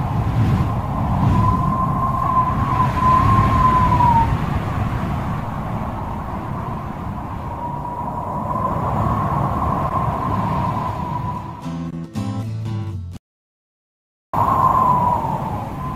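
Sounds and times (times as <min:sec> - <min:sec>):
wind and rain on microphone: 0:00.0 - 0:11.6, 0:14.4 - 0:15.9.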